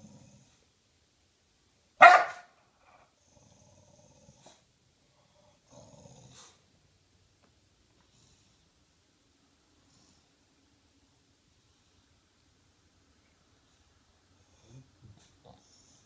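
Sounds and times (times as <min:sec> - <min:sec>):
dog barking: 0:02.0 - 0:02.6
dog growling: 0:03.0 - 0:04.7, 0:05.3 - 0:06.6.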